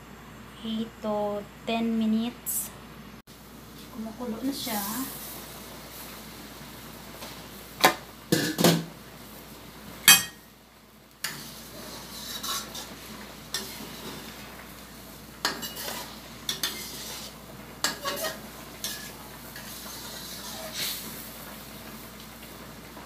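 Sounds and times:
food bubbling at boil: 4.8s - 23.0s
metal cookware clanking: 10.0s - 10.4s, 15.4s - 20.9s
metal spatula scraping wok: 11.2s - 14.5s, 15.4s - 21.2s.

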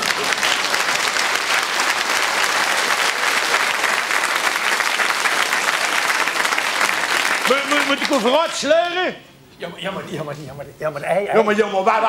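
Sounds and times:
audience applauding: 0.0s - 9.0s.

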